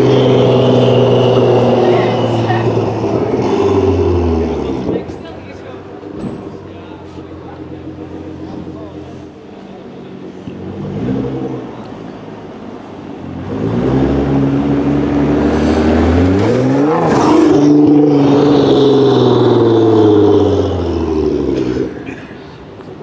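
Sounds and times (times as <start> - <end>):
sports car engine revving past: 0.0 - 5.0, 13.2 - 22.0.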